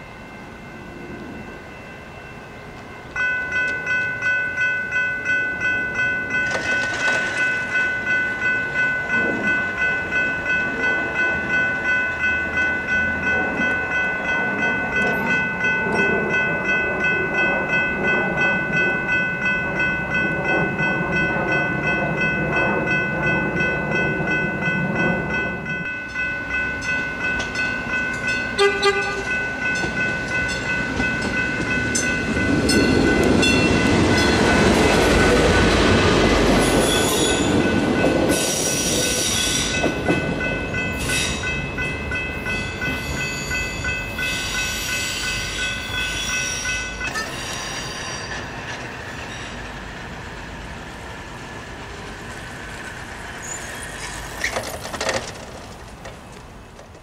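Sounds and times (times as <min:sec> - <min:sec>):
crossing bell ringing: 0:00.0 - 0:55.1
diesel railcar rumbling: 0:00.0 - 0:57.0
train horn blast: 0:28.6 - 0:29.4.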